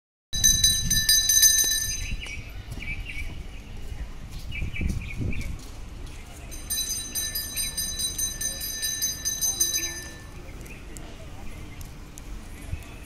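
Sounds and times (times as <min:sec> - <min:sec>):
hand bell ringing: 0:00.4 - 0:02.4, 0:06.5 - 0:10.4
birds chirping: 0:00.4 - 0:03.8, 0:04.4 - 0:13.0.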